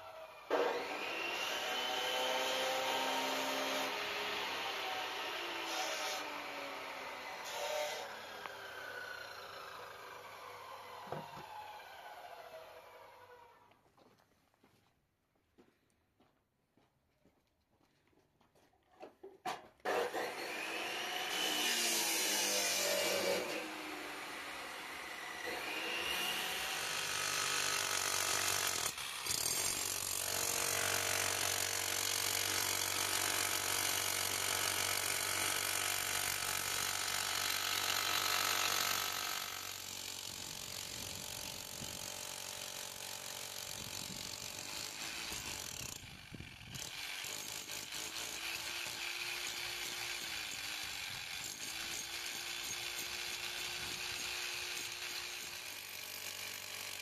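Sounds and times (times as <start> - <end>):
demolition hammer chiselling concrete: 19.9 - 57.0.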